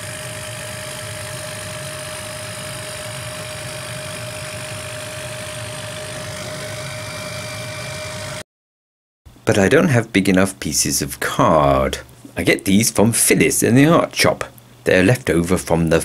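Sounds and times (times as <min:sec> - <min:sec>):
laser cutter humming and whining: 0:00.0 - 0:08.4.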